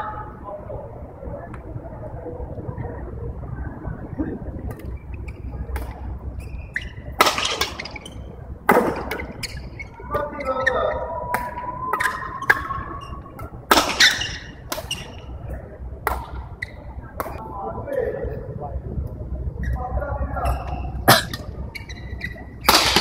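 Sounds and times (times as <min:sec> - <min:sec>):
rackets striking shuttlecock: 0:22.6 - 0:23.0.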